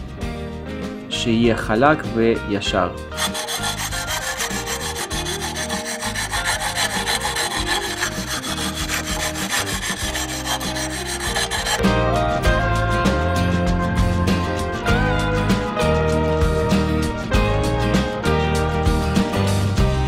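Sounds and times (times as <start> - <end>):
background music: 0.0 - 20.0
sandpaper grinding on tile: 3.2 - 11.8.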